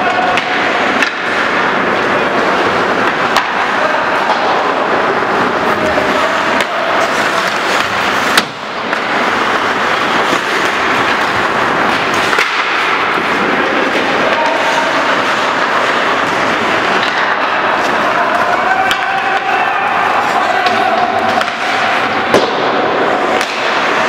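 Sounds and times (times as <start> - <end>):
hockey sticks and puck clacking: 0.0 - 24.0
skates scraping ice: 0.0 - 24.0.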